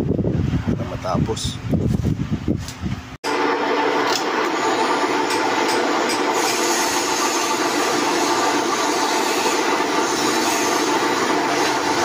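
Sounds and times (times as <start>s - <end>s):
drill press whirring hum: 3.3s - 12.0s.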